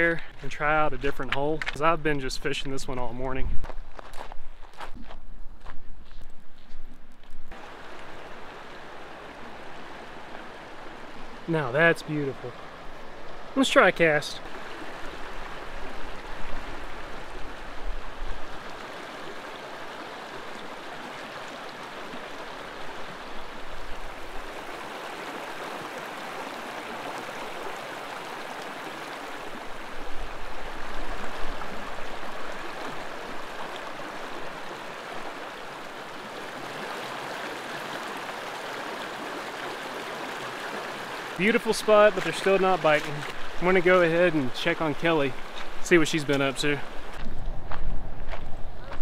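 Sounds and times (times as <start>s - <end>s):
river rushing over rocks: 7.5s - 47.1s.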